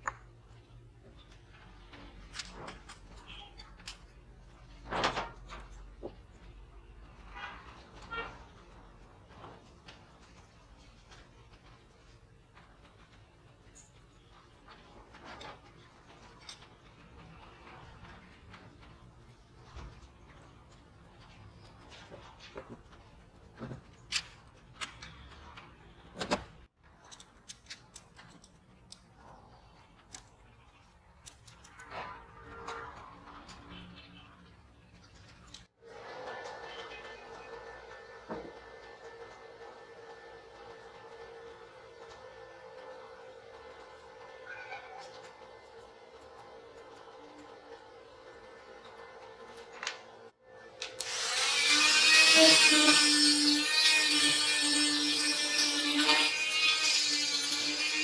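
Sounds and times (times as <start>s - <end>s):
metal parts clicking and knocking: 26.2s - 29.2s.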